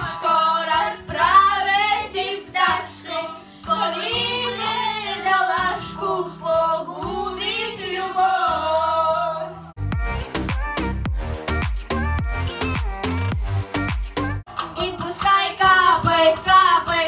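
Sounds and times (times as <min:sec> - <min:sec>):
girls singing karaoke: 0:00.0 - 0:10.7, 0:14.5 - 0:17.0
backing track music: 0:00.0 - 0:17.0
electronic beat with heavy drums: 0:09.8 - 0:16.2.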